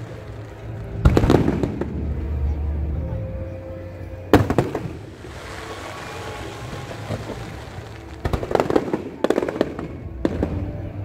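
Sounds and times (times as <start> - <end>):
fireworks bangs and crackles: 0.0 - 2.9, 4.2 - 11.0
fireworks hissing: 4.4 - 9.7.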